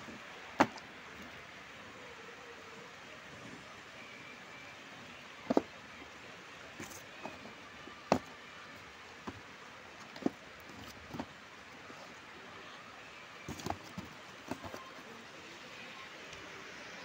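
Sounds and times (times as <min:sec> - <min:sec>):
steady low hiss: 0:00.0 - 0:17.0
apples knocking in cardboard tray: 0:05.5 - 0:05.7, 0:08.1 - 0:08.3, 0:13.5 - 0:14.9.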